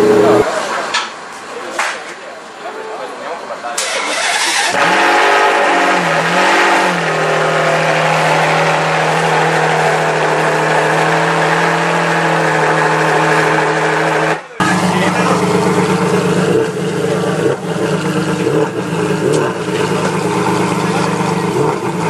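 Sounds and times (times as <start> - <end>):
car engine revving and idling: 3.8 - 22.0.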